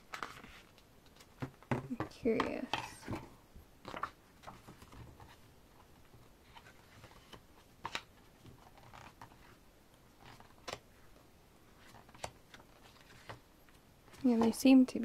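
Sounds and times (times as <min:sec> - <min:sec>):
book pages turning: 0:00.0 - 0:01.6, 0:03.8 - 0:09.6, 0:10.2 - 0:14.6.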